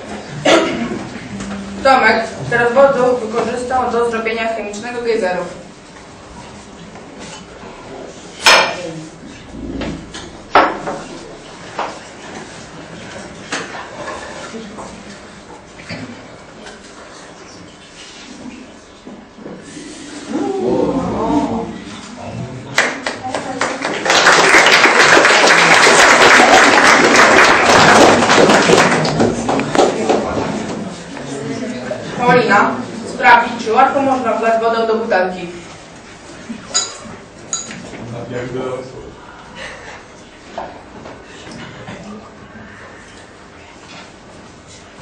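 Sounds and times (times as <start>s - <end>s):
audience applauding: 22.8s - 30.3s.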